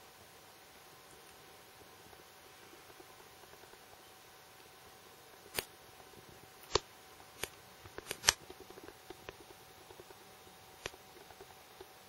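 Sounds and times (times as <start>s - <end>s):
faint steady hum: 0.0s - 12.0s
camera clicks and ticks: 6.6s - 10.2s.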